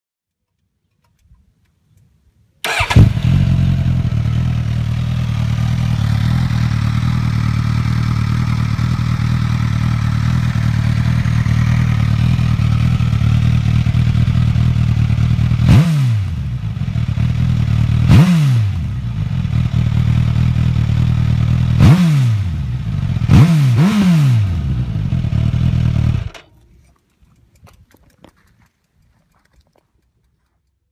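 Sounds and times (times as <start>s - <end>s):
motorcycle engine revving: 2.6s - 26.4s.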